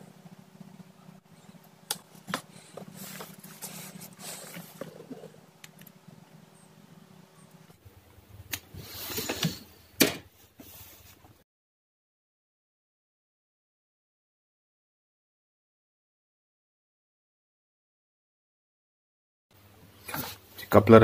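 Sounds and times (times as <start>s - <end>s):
low steady hum: 0.0s - 11.4s.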